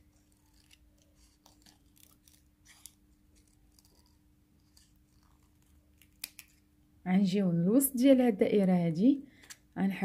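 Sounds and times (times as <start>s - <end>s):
low steady hum: 0.0s - 10.0s
small scissors snipping plastic: 0.2s - 6.6s.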